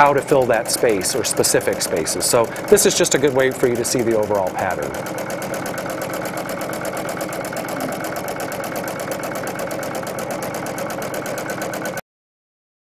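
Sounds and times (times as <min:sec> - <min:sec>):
sewing machine stitching: 0:00.0 - 0:12.0.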